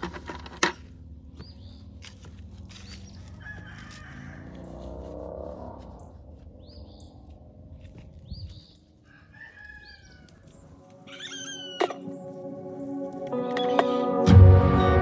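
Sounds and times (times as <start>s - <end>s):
chickens clucking and crowing: 3.1s - 5.4s, 8.8s - 14.2s
music with held notes: 10.9s - 15.0s.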